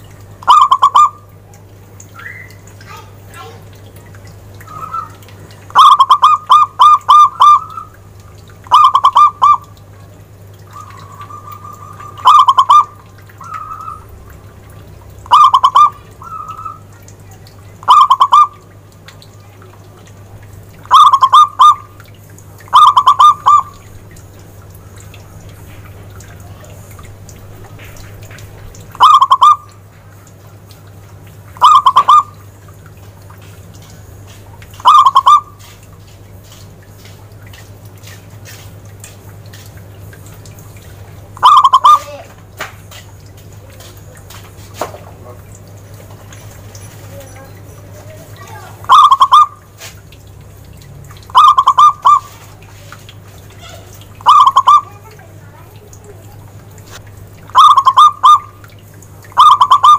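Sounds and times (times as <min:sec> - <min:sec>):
dove cooing: 0:00.4 - 0:01.2, 0:04.6 - 0:08.0, 0:08.7 - 0:09.7, 0:10.7 - 0:14.1, 0:15.3 - 0:16.8, 0:17.8 - 0:18.6, 0:20.9 - 0:21.9, 0:22.7 - 0:23.8, 0:28.9 - 0:29.8, 0:31.6 - 0:32.4, 0:34.8 - 0:35.5, 0:41.4 - 0:42.3, 0:48.8 - 0:49.6, 0:51.3 - 0:52.4, 0:53.6 - 0:55.2, 0:57.5 - 0:58.6, 0:59.4 - 0:59.9.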